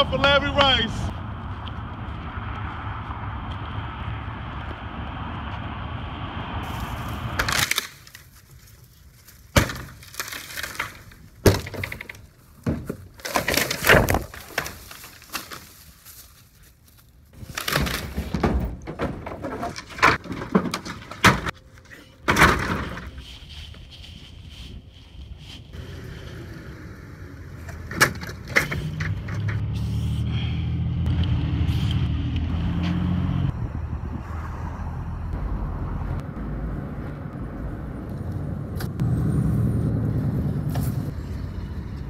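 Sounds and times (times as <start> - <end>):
wooden boards cracking and splintering: 7.4 - 8.3, 9.4 - 15.8, 17.4 - 21.6, 22.3 - 23.1.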